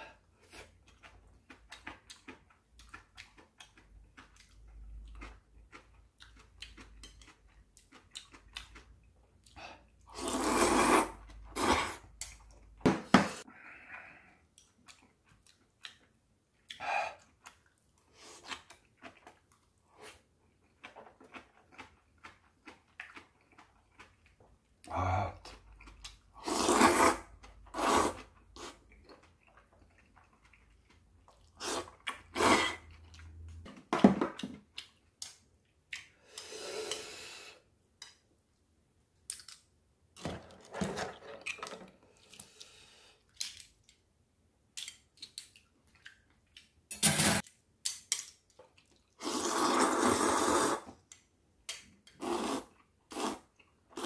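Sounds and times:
person chewing: 0.4 - 12.6, 14.5 - 33.5, 44.8 - 46.8, 48.0 - 54.0
noodle slurps: 10.1 - 12.0, 26.4 - 28.8, 31.6 - 32.9, 49.2 - 51.0, 52.2 - 54.0.

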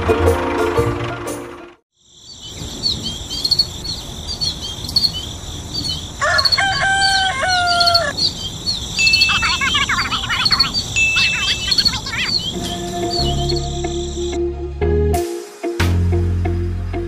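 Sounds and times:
high insect drone: 2.0 - 14.4
small birds chirping: 2.0 - 14.4
bird warbling: 2.2 - 14.4
rooster crowing: 5.8 - 8.3.

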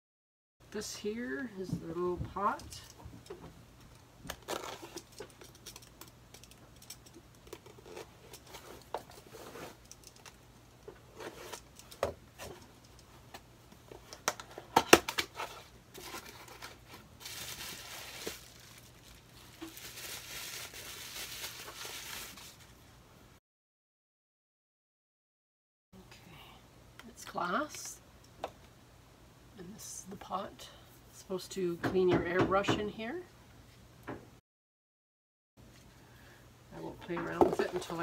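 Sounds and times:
plastic bag crinkling: 15.0 - 22.7.

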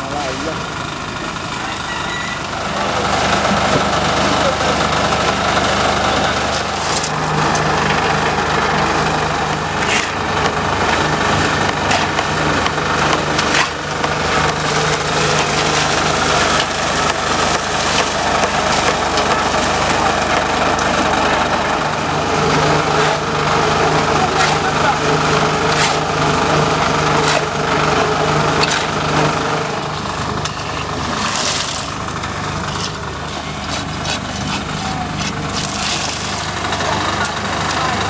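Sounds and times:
concrete mixer engine droning: 0.0 - 38.0
knocks and clatter of tumbling mix: 9.9 - 29.5.

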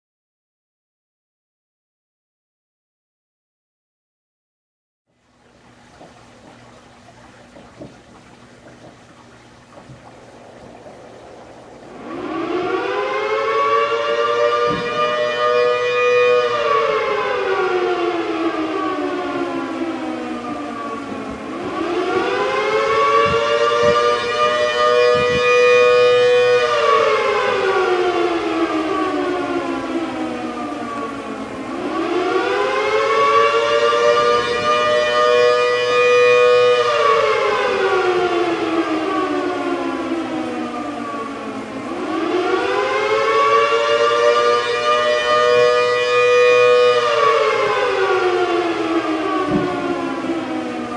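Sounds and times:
two-tone siren wailing: 6.0 - 50.9.

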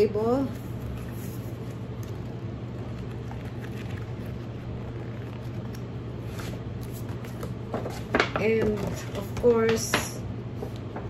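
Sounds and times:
low hum: 0.0 - 7.7.

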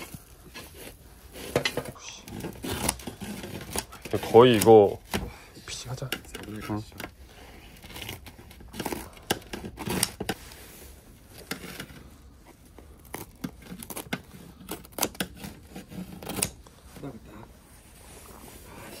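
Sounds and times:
scissors cutting crisp crust: 13.0 - 16.6.

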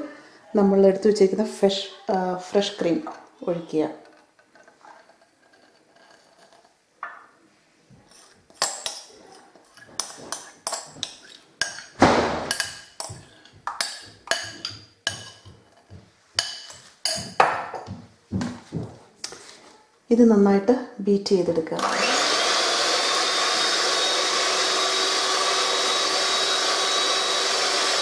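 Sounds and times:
spoon scraping bowl: 2.1 - 17.4
spoon clinking against glass bowl: 10.0 - 17.6.

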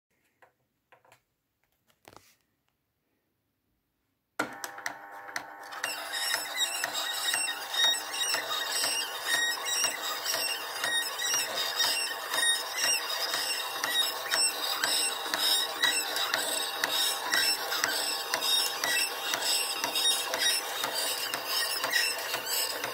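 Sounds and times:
film scanner clicking: 4.4 - 22.9
squealing noise: 5.8 - 22.9.

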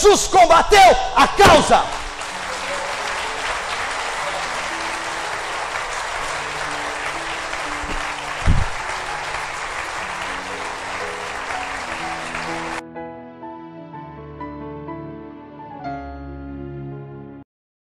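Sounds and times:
audience applauding: 1.4 - 12.8
soft slow music: 1.9 - 17.4.

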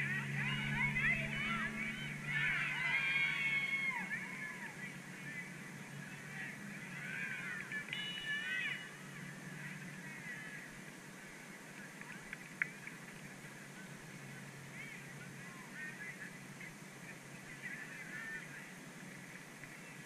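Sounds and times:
distant geese honking: 0.0 - 10.9
steady low hum: 0.0 - 20.0.

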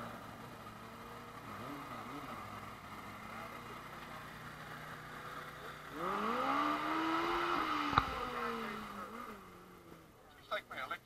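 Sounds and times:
vehicle engine revving: 0.0 - 10.6.

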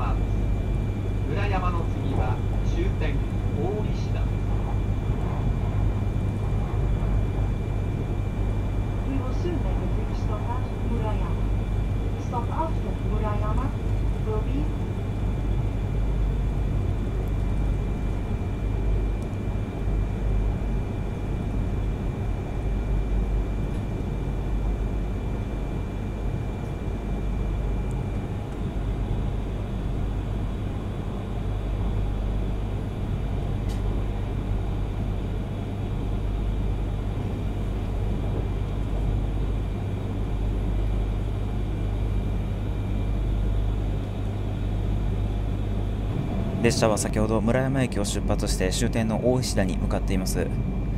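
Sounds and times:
train cabin low rumble: 0.0 - 50.9.

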